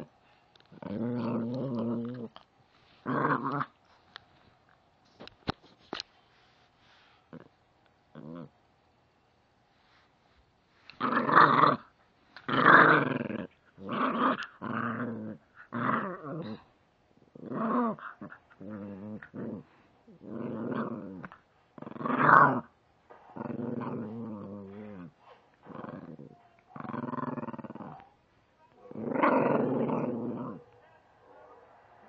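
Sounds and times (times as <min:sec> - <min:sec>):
puppy play-growling: 0:00.0 - 0:03.9, 0:08.1 - 0:08.6, 0:10.9 - 0:28.1, 0:28.8 - 0:30.8.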